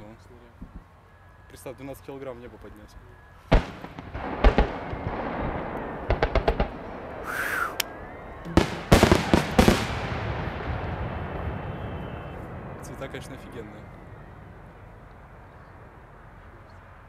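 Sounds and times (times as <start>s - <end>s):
firework whistle: 3.4s - 15.0s
fireworks bursting with sharp bangs: 3.5s - 13.0s
rumbling crackling echo: 3.5s - 17.0s.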